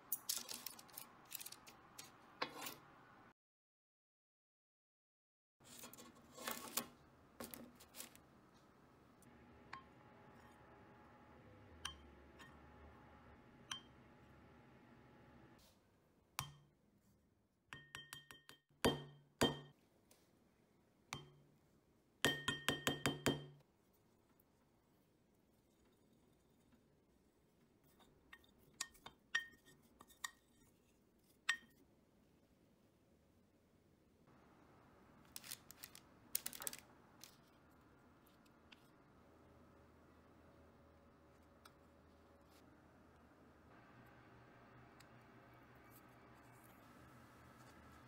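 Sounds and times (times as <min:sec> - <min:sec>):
wooden spoon tapping glass: 0:17.8 - 0:19.7, 0:21.2 - 0:21.4, 0:22.3 - 0:23.6.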